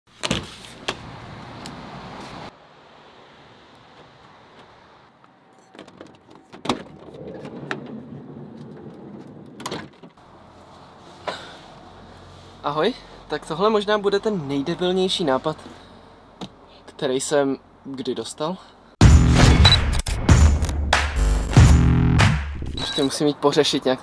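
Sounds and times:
van door opening and shutting: 0:05.7 - 0:10.2.

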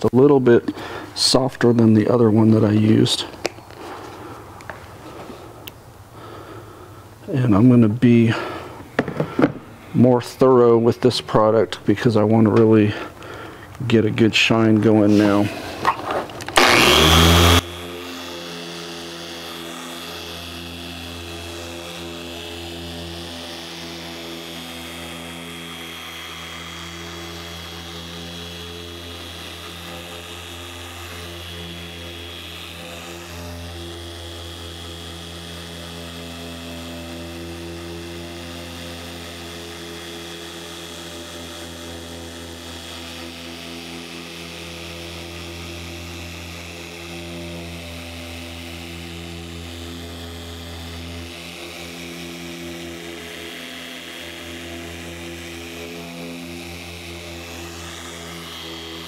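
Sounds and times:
electric polisher whining: 0:00.0 - 0:07.7, 0:08.4 - 0:13.8, 0:14.4 - 0:59.0.

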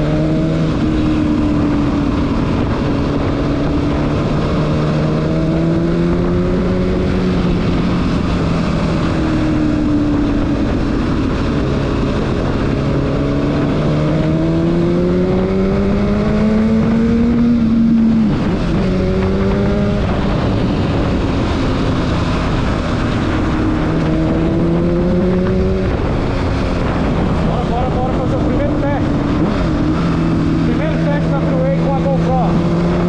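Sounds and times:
motorcycle engine revving through gears: 0:00.0 - 0:33.0
wind and road noise: 0:00.0 - 0:33.0.

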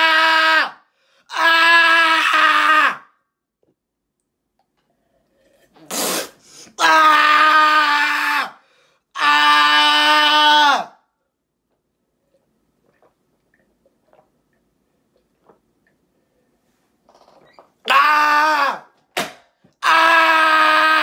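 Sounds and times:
boy screaming: 0:00.0 - 0:03.1, 0:06.8 - 0:08.6, 0:09.2 - 0:11.0, 0:17.9 - 0:18.9, 0:19.8 - 0:21.0.

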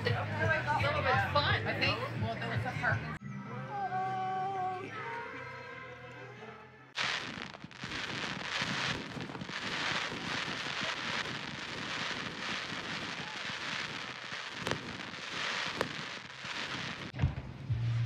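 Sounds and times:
firework bang: 0:07.0 - 0:17.5
fireworks crackling and hissing: 0:07.0 - 0:18.0.

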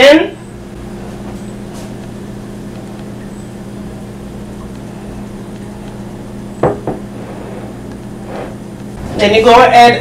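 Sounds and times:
low room hum: 0:00.0 - 0:10.0
glass dishware knocks: 0:06.6 - 0:07.1.

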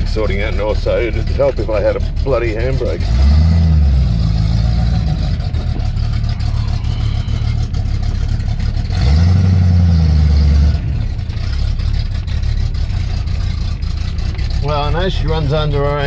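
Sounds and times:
man talking: 0:00.0 - 0:03.0, 0:14.6 - 0:16.0
car engine revving: 0:00.0 - 0:16.0.

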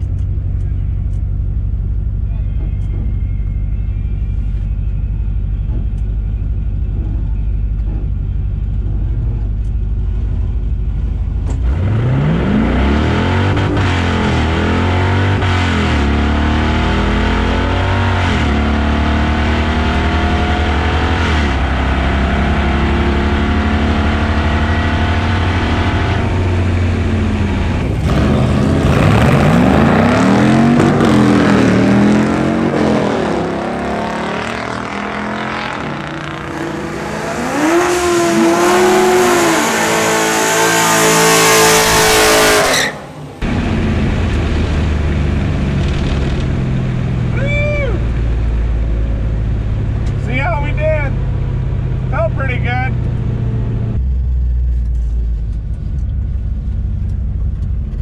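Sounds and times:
car engine idling and accelerating: 0:00.0 - 0:58.0
drag car launching trackside: 0:11.4 - 0:56.0.

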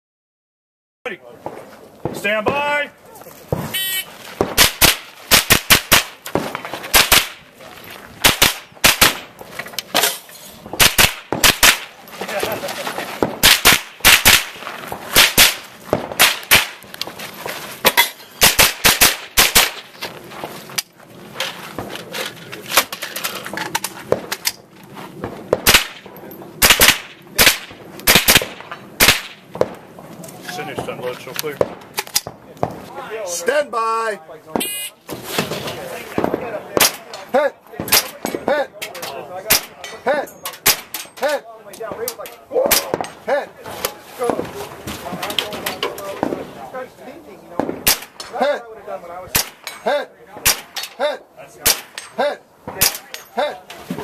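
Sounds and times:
rifle shots fired rapidly: 0:04.4 - 0:07.4, 0:08.2 - 0:09.3, 0:10.7 - 0:12.0, 0:13.2 - 0:16.8, 0:17.8 - 0:19.9, 0:26.6 - 0:29.8.

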